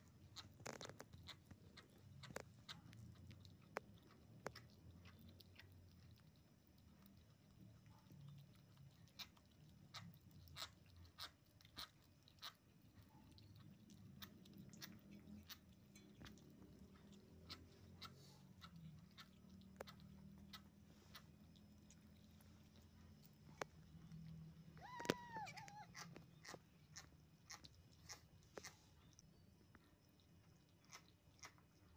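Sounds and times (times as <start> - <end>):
kittens chewing wet clicks: 0.0 - 31.9
kitten meowing: 24.7 - 26.2.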